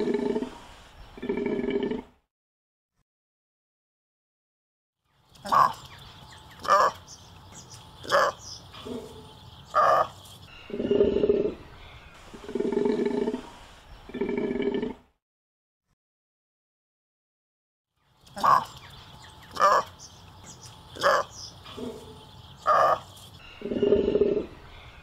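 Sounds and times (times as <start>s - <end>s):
takin calling: 18.3s - 24.5s.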